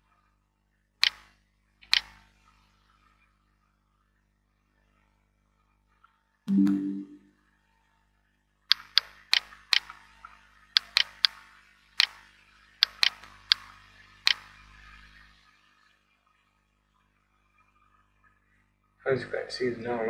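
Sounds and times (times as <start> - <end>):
sharp clicks: 1.0 - 2.2, 8.7 - 9.9, 10.8 - 11.4, 12.8 - 13.7, 14.3 - 14.5
two-note rising chime: 6.5 - 7.2.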